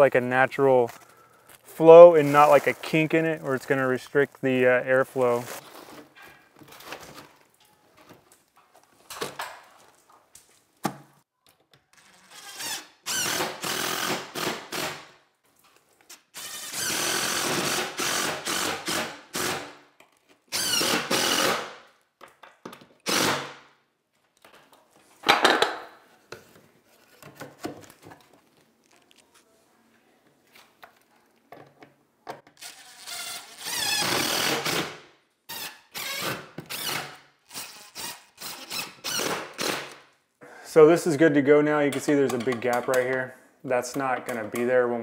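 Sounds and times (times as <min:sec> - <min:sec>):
cordless drill driving screws: 0:12.0 - 0:15.0, 0:16.4 - 0:19.7, 0:20.5 - 0:21.7, 0:23.1 - 0:23.5, 0:32.6 - 0:34.9, 0:35.5 - 0:40.0.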